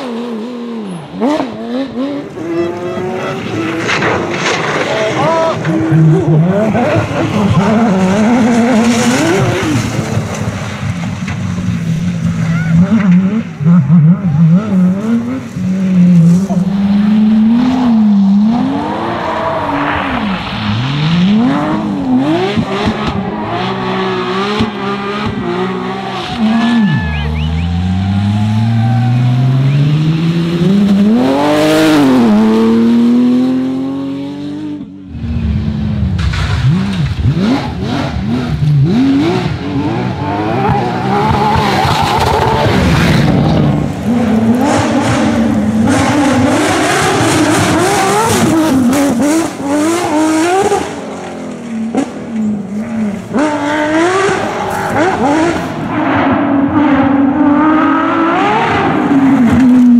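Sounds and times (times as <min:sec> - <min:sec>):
rally car engine revving: 0:00.0 - 0:59.9.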